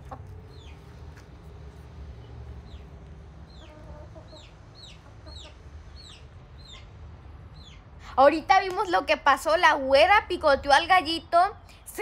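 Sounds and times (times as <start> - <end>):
hens clucking: 0.0 - 6.9.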